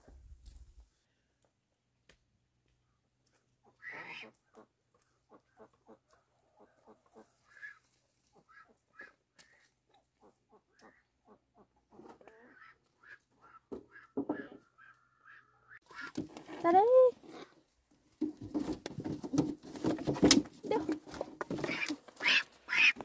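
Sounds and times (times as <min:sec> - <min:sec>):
ducks quacking: 0:03.6 - 0:06.0, 0:06.8 - 0:16.2, 0:21.6 - 0:23.0.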